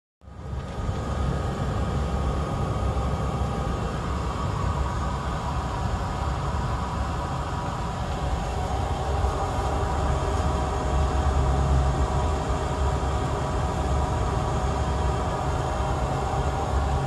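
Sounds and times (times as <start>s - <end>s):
low rumble and hiss: 0.2s - 17.0s
turboprop engine drone: 0.2s - 17.0s.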